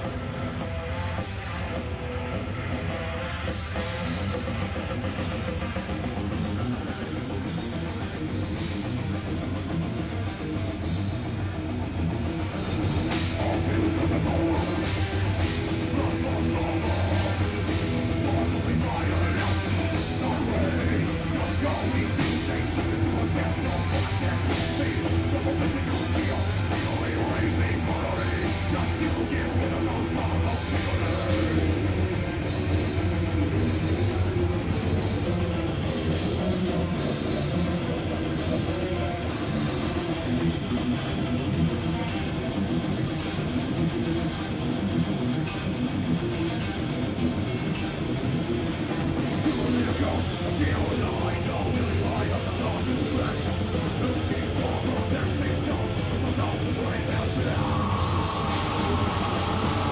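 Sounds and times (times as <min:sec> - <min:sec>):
heavy metal band playing live: 0:00.0 - 0:59.9.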